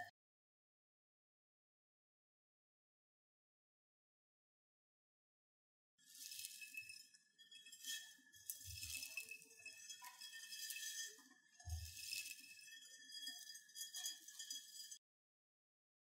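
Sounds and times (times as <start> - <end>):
rubber bands rustling in a glass bowl: 7.8 - 15.0.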